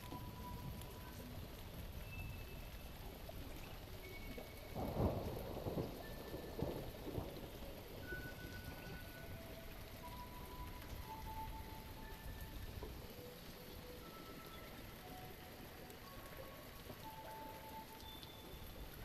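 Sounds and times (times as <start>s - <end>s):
steady rain: 0.0s - 19.0s
thunder rumbling: 4.4s - 13.0s.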